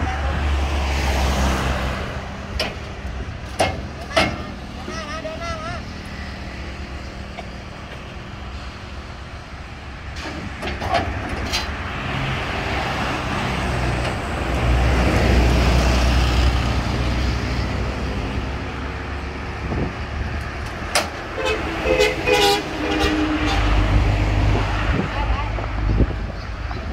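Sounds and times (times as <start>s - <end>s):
road traffic passing: 0.0s - 26.9s.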